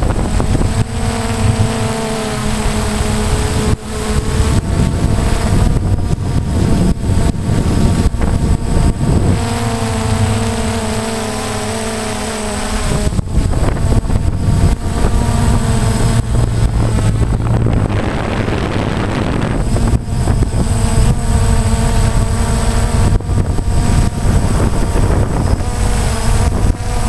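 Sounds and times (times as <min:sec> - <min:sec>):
drone propellers whirring: 0:00.0 - 0:27.0
wind buffeting on microphone: 0:00.0 - 0:27.0.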